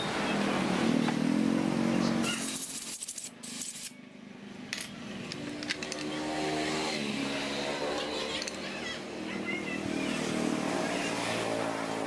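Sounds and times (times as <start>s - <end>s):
small engine droning by: 0.0s - 2.6s, 5.0s - 12.0s.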